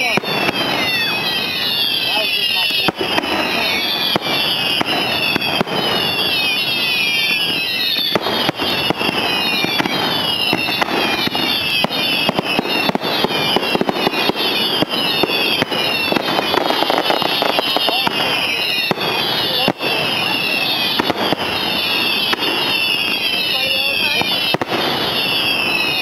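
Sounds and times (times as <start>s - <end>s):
firework whistles falling in pitch: 0.0s - 26.0s
fireworks popping and banging: 0.0s - 26.0s.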